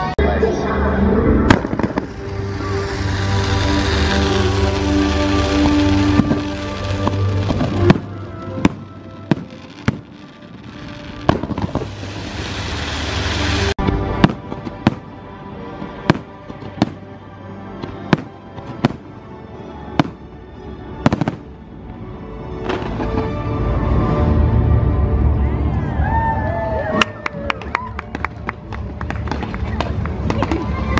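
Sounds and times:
show music: 0.0 - 20.3
fireworks bursting with sharp bangs: 1.4 - 17.1, 17.8 - 19.3, 19.9 - 20.3, 21.0 - 21.6, 22.6 - 23.4
rising firework hiss: 1.5 - 15.0.

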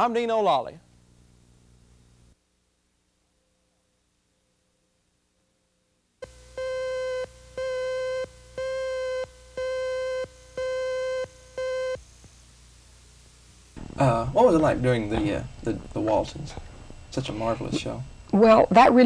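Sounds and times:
buzzy slate tone beeps: 6.2 - 12.0.

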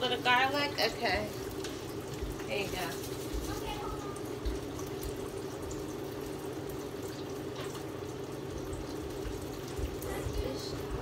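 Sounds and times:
hot oil sizzling: 0.0 - 11.0.

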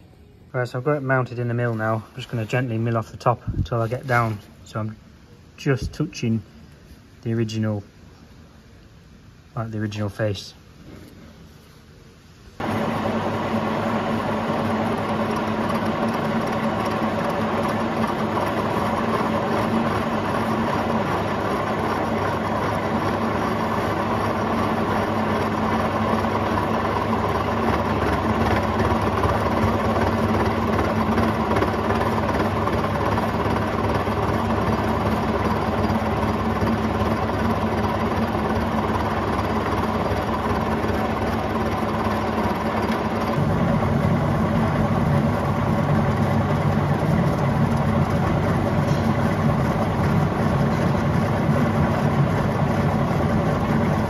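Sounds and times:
milling machine hum: 12.6 - 54.0.

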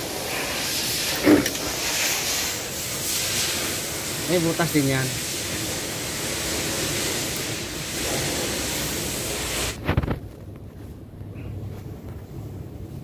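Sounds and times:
steady hiss: 0.0 - 10.2.

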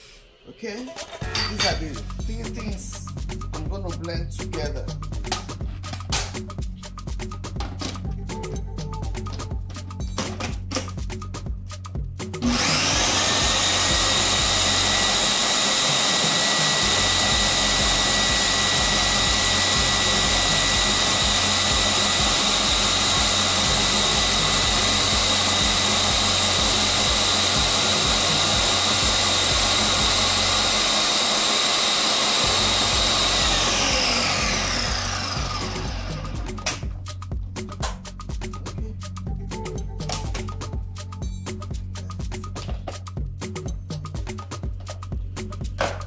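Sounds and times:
blender motor whining: 12.4 - 36.9.

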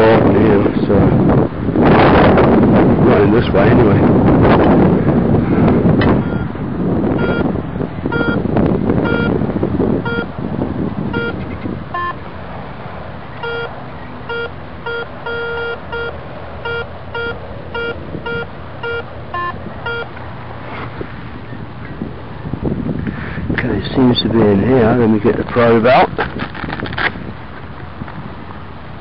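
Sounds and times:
metal detector beeping: 6.2 - 6.5, 7.2 - 7.5, 8.1 - 8.4, 9.0 - 9.4, 10.0 - 10.3, 11.1 - 12.2, 13.4 - 13.7, 14.3 - 20.1.

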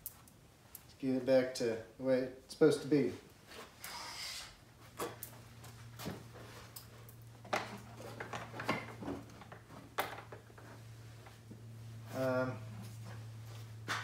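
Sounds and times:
steady low hum: 0.0 - 14.0
knocks and clinks on a workbench: 7.5 - 10.7.

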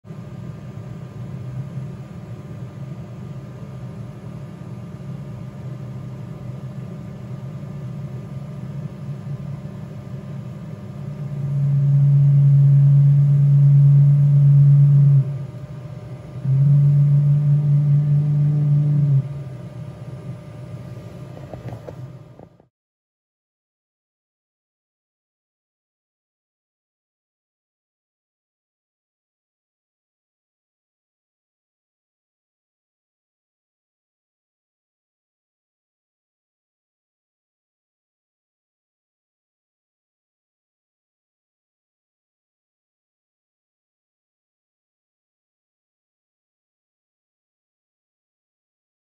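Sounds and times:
printer machinery humming: 6.8 - 22.6.

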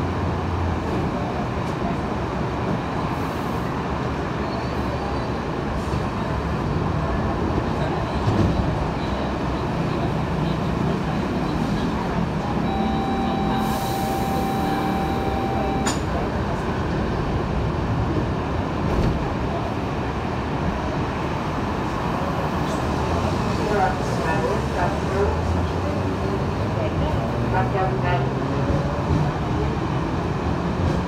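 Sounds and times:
train wheels rumbling on track: 0.0 - 31.0
steady high tone: 12.6 - 16.2.

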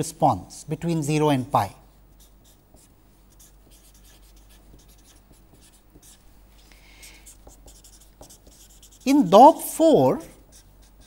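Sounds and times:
marker writing on paper: 2.1 - 6.2, 7.2 - 9.3, 10.3 - 11.0.

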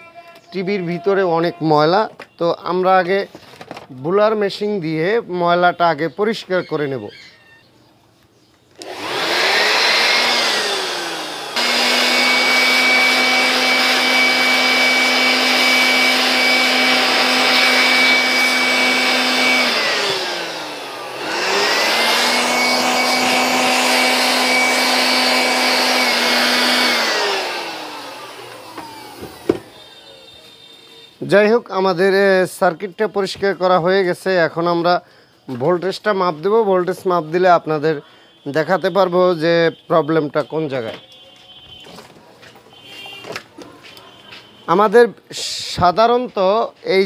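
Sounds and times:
electric air blower whining: 8.8 - 32.4.

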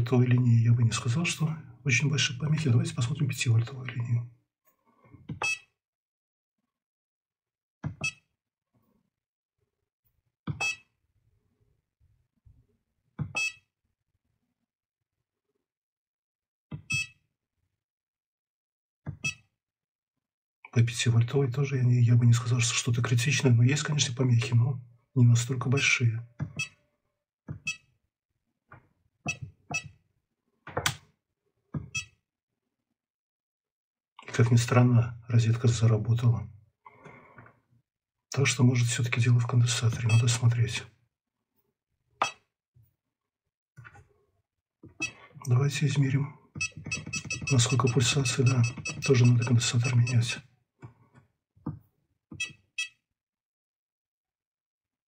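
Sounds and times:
short high electronic beeps: 46.6 - 50.3.

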